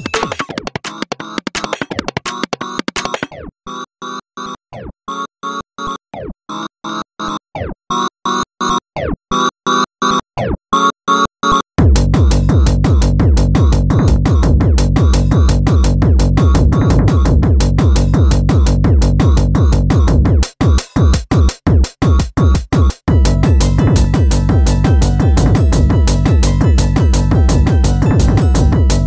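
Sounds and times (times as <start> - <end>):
fast techno track: 0.0 - 3.3, 11.8 - 29.0
bass and synth lines: 0.0 - 29.0
fast kick drum: 11.8 - 29.0.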